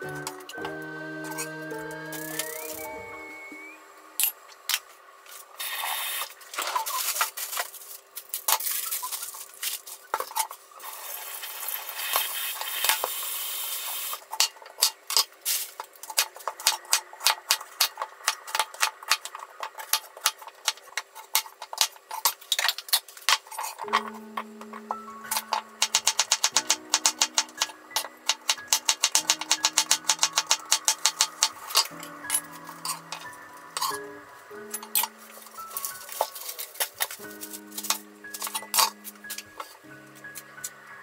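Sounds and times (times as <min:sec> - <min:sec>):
pots and utensils clinking: 0:14.2 - 0:40.8.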